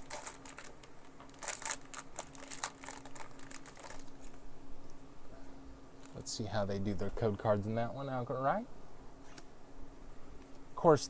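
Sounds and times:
foil wrapper crinkling: 0:00.0 - 0:04.4.

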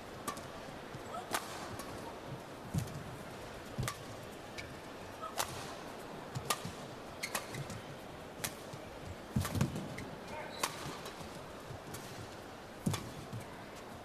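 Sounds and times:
hall background noise: 0:00.0 - 0:14.0
rackets striking shuttlecock: 0:00.2 - 0:00.5, 0:01.3 - 0:02.0, 0:03.8 - 0:04.1, 0:06.4 - 0:07.8, 0:09.4 - 0:11.3, 0:12.8 - 0:13.4.

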